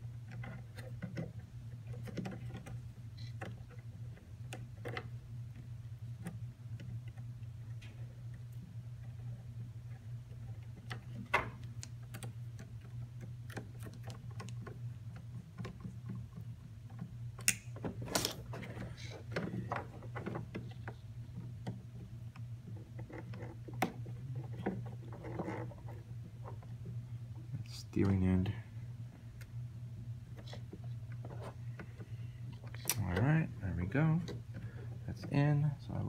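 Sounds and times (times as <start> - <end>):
steady low hum: 0.0 - 36.0.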